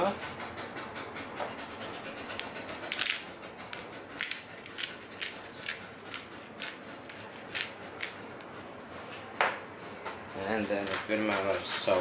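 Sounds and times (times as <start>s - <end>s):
pepper mill grinding: 2.3s - 8.3s.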